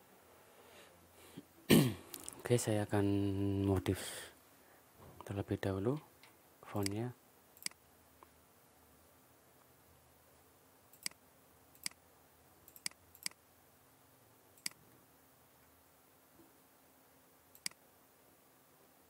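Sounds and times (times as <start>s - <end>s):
faint background hum: 0.0s - 19.0s
computer mouse clicks: 7.6s - 7.8s, 10.9s - 11.2s, 11.8s - 12.0s, 12.7s - 13.4s, 14.6s - 14.8s, 17.5s - 17.8s.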